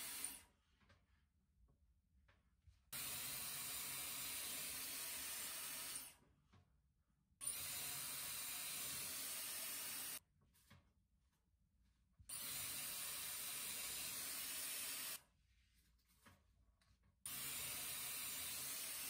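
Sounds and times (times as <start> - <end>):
hair styler blowing air: 0.0 - 0.4, 3.0 - 6.1, 7.4 - 10.2, 12.3 - 15.2, 17.3 - 19.0.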